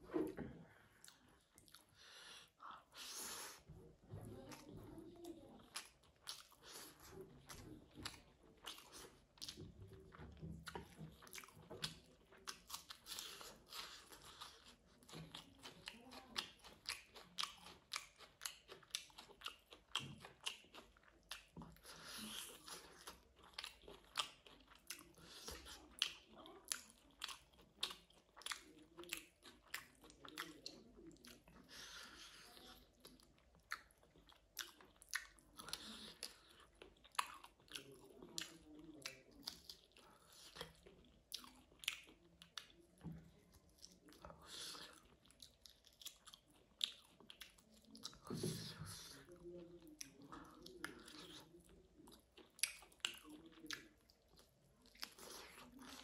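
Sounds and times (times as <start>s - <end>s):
person chewing food: 0.0s - 56.0s
mouth clicks and smacks: 52.4s - 54.2s.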